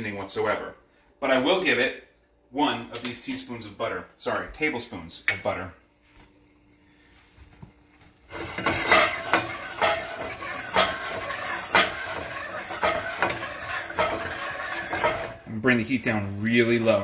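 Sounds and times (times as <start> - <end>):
sauce boiling and sizzling in pan: 8.2 - 15.5.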